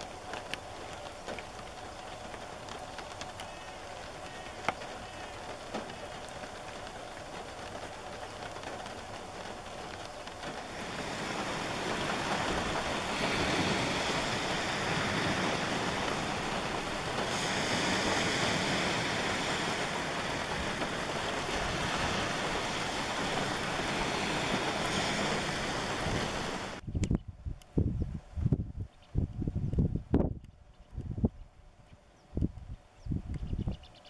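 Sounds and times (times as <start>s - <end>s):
waves washing onto pebbles: 0.0s - 26.8s.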